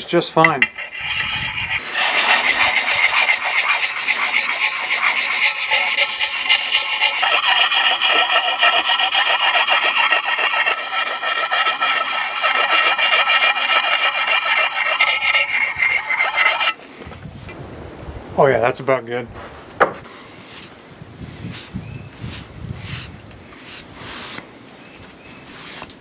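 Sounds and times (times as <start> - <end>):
sharpening stone scraping axe: 0.4 - 16.8.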